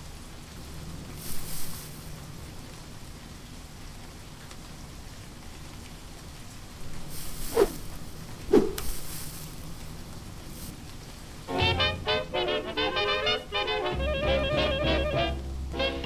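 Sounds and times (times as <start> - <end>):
faint crackling hiss: 0.0 - 14.1
whooshes with falling tone: 7.2 - 9.2.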